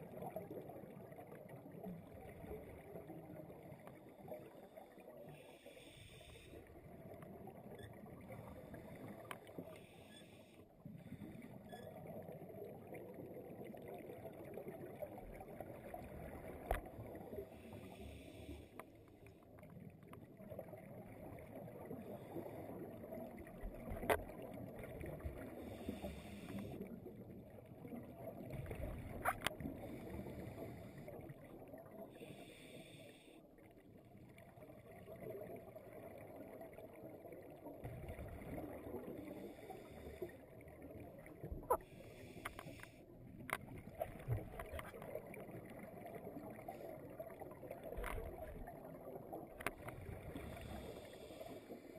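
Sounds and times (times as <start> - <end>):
scuba exhaust bubbles hissing: 25.1 - 27.0, 50.1 - 51.9.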